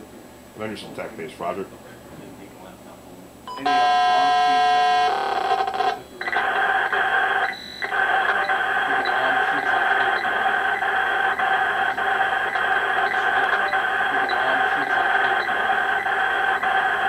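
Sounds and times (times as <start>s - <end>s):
chord of radio tones: 3.6s - 17.0s
modem-like data screech: 3.6s - 17.0s.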